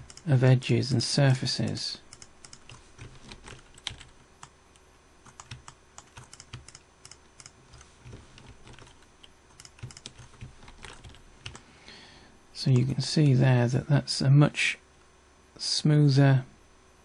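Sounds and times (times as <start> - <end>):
keyboard and mouse clicking: 0.0 - 0.3, 1.7 - 4.5, 5.3 - 11.6.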